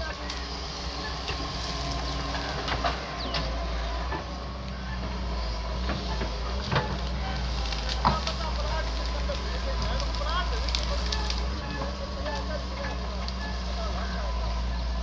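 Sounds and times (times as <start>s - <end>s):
diesel engine running: 0.0s - 15.0s
bird chirps: 1.9s - 4.0s, 4.9s - 5.7s.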